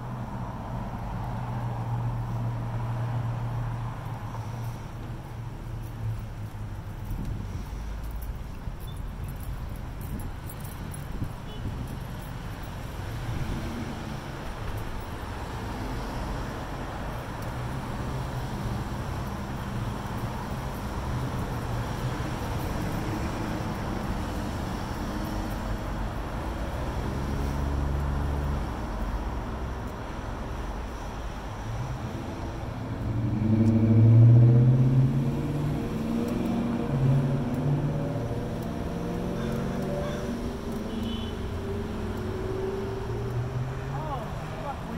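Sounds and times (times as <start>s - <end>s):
cars driving past: 0.0s - 44.9s
loud vehicle engine passing: 31.8s - 44.9s.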